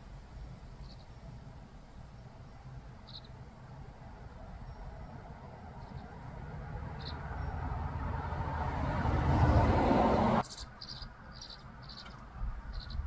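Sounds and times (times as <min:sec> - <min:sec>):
rushing noise: 0:05.2 - 0:10.4.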